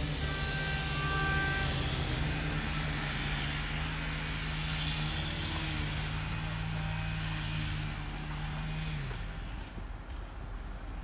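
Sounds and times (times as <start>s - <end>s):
train horn: 0.0s - 2.8s.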